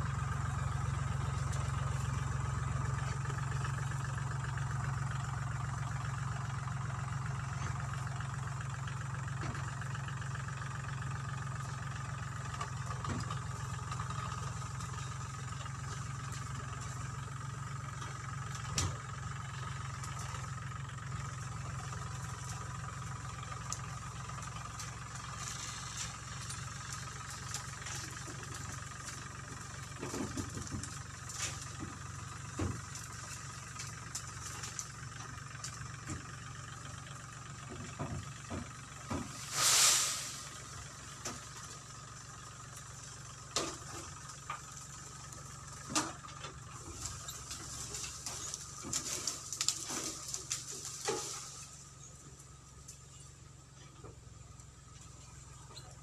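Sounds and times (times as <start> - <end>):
tractor engine running: 0.0 - 56.0
sharp crack: 39.4 - 40.7.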